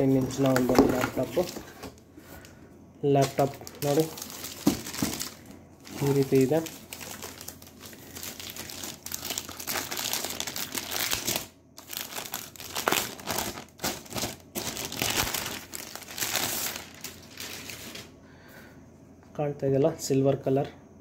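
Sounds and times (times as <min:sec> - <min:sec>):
plastic sleeve crinkling: 0:00.0 - 0:02.5, 0:03.2 - 0:18.1.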